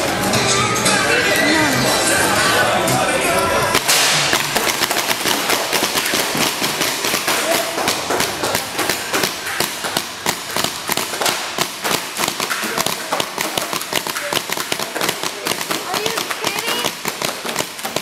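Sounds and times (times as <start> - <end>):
paintball guns popping: 3.8 - 18.0.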